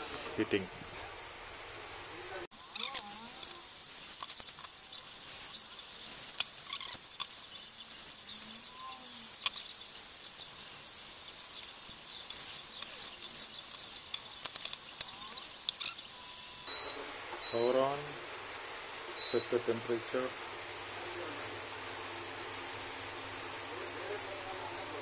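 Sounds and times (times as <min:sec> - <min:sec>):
steady hiss: 0:00.0 - 0:25.0
plastic parts clicking and tapping: 0:12.2 - 0:15.9.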